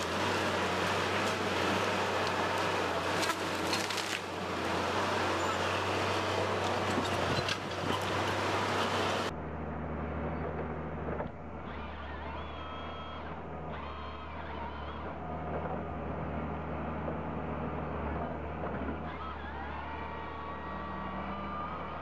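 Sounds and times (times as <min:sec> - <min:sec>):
loud mechanical clattering: 0:00.0 - 0:09.3
heavy machinery engine hum: 0:00.0 - 0:22.0.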